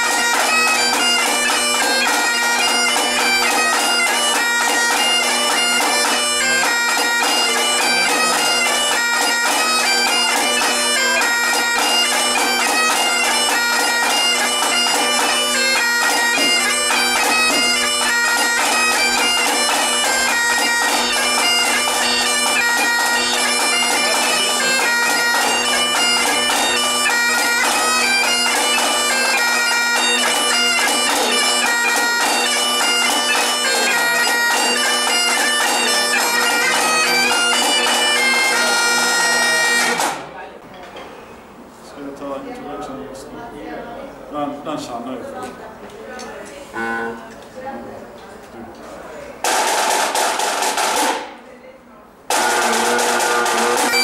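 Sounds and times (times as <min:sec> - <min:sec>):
bagpipe playing a tune: 0:00.0 - 0:40.2, 0:46.7 - 0:47.3, 0:52.3 - 0:54.0
snare drum: 0:49.4 - 0:51.4, 0:52.3 - 0:54.0.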